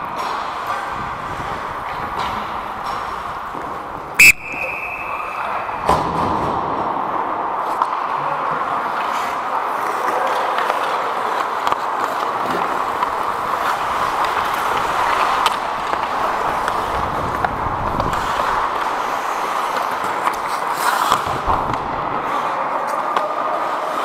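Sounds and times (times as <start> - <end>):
skates scraping on ice: 0.0 - 24.0
referee's whistle blast: 4.2 - 5.8.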